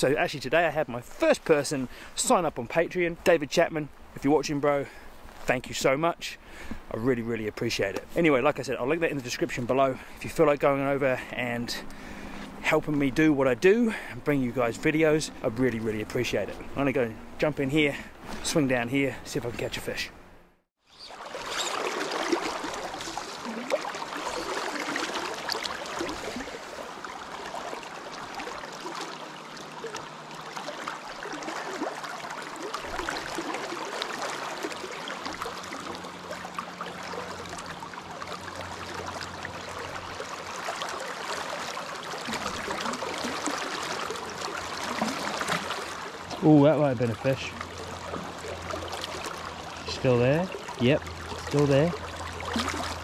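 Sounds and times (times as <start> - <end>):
river current rushing: 9.9 - 18.9, 20.9 - 53.0
small water splashes: 20.8 - 53.0.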